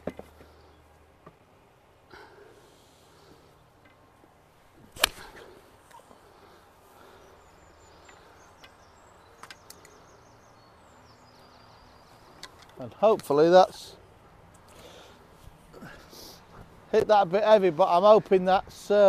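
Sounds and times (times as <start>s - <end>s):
golf club striking ball: 4.9s - 5.5s.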